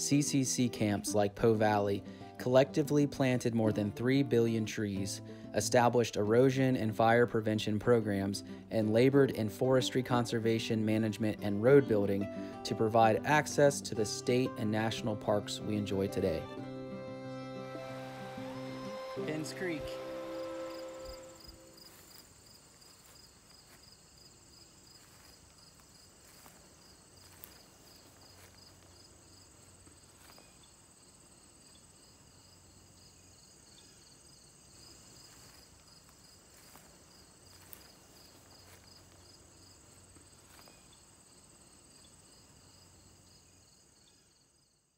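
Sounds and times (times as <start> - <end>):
high insect buzz: 16.7 - 44.9
insects chirping: 18.4 - 44.9.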